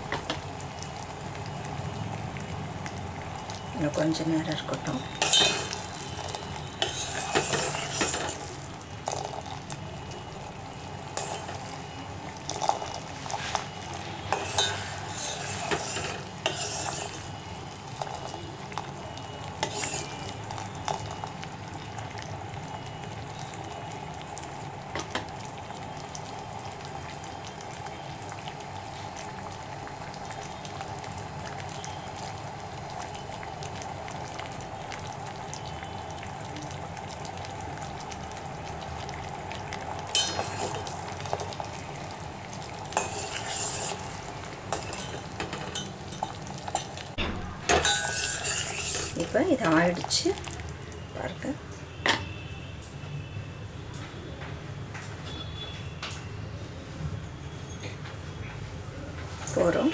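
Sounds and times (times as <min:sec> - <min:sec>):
syrup bubbling in a pot: 0:00.0 - 0:47.2, 0:47.8 - 0:52.7
metal ladle clinking against pot: 0:05.2 - 0:05.8, 0:43.0 - 0:44.0, 0:44.7 - 0:49.4.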